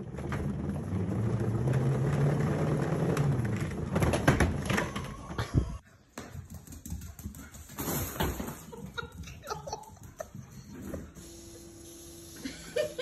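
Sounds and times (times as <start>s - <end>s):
cat wheel rolling rumble: 0.0s - 5.8s.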